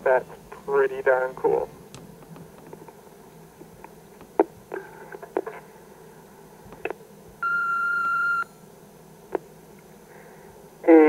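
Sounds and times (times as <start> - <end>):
answering machine beep: 7.4 - 8.6.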